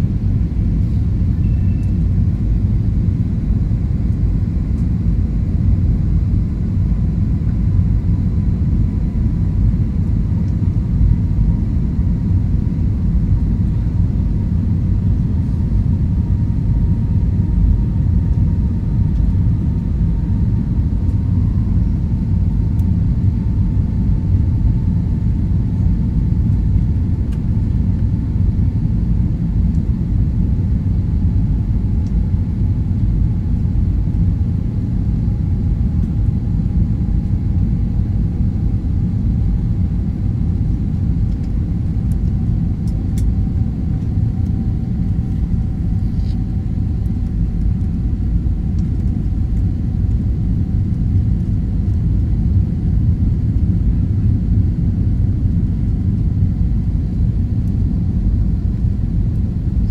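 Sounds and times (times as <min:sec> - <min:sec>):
aircraft cabin engine rumble: 0:00.0 - 0:59.9
faint whine falling in pitch: 0:01.3 - 0:02.1.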